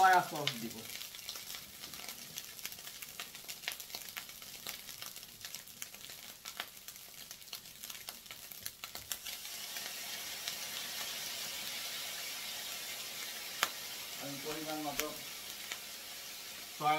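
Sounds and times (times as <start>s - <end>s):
rice sizzling in oil: 0.0s - 16.9s.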